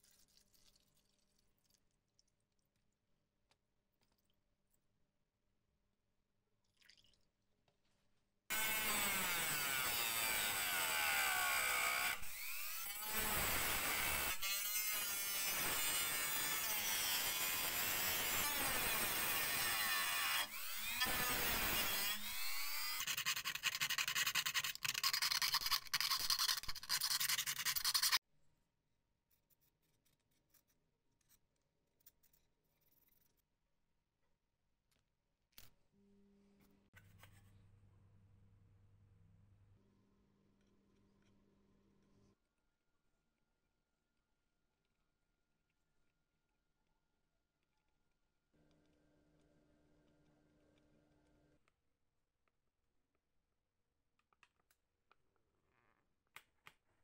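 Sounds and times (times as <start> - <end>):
rotary tool cutting metal: 8.5 - 28.2.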